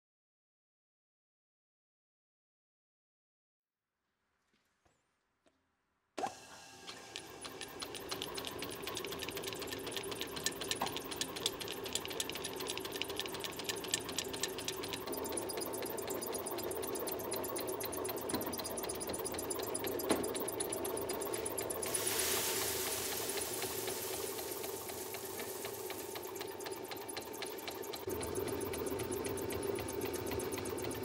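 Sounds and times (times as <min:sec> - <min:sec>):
grain mill clattering: 0:18.1 - 0:28.2
grain pouring hiss: 0:21.8 - 0:26.8.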